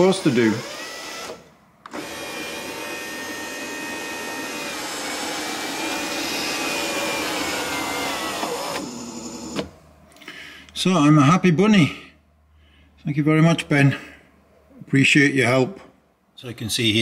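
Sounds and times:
electric roof motor whining: 0.0s - 9.8s.

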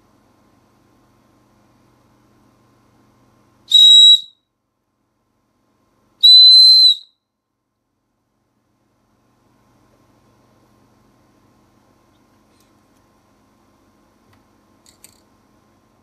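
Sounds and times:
toy whistle blasts: 3.7s - 4.4s, 6.2s - 7.2s.

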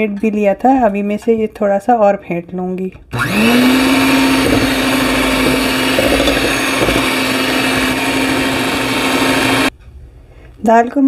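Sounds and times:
electric hand mixer whine: 3.2s - 9.7s.

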